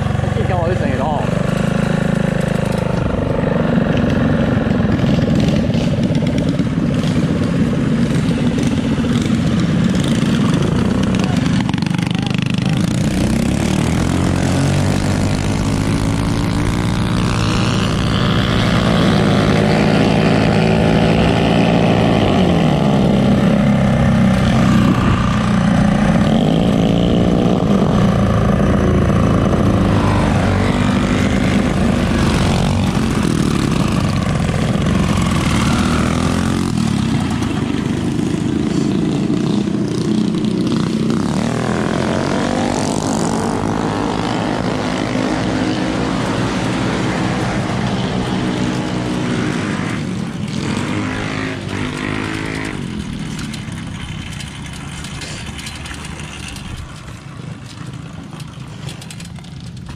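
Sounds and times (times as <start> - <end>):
mini bike engine revving: 0.0 - 59.9
wind noise on microphone: 13.4 - 36.2.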